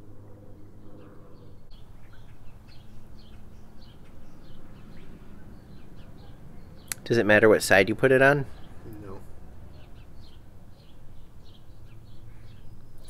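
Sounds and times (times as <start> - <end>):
low steady hum: 0.0 - 7.5
small birds chirping: 0.3 - 13.0.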